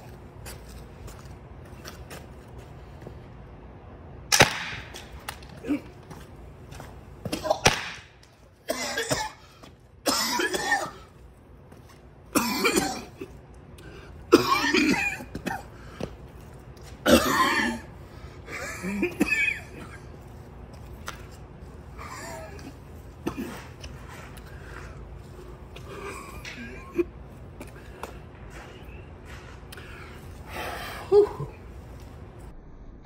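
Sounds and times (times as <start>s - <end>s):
launcher pops: 4.3s - 5.4s, 7.6s - 8.2s
man coughing hard: 8.6s - 11.1s, 12.3s - 13.4s, 14.3s - 15.8s, 17.0s - 17.9s, 18.5s - 20.1s, 22.0s - 23.8s.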